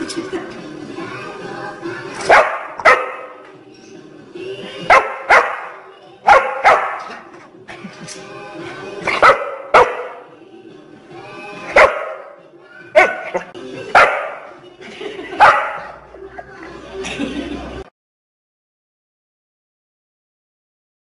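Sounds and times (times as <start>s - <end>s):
dog barking: 2.3s - 3.4s, 4.9s - 7.2s, 9.1s - 10.3s, 11.7s - 12.4s, 13.0s - 14.5s, 15.4s - 16.0s.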